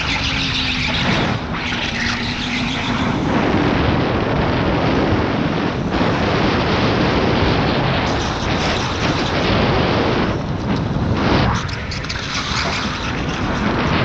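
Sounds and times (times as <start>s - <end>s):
tyre and drivetrain noise: 0.0s - 14.0s
wind rushing over microphone: 0.0s - 14.0s.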